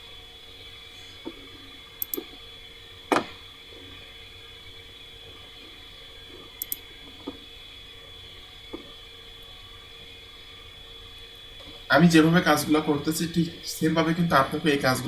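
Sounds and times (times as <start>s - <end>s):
faint steady whine: 0.0s - 15.0s
computer mouse clicking: 2.0s - 2.3s, 6.6s - 6.8s.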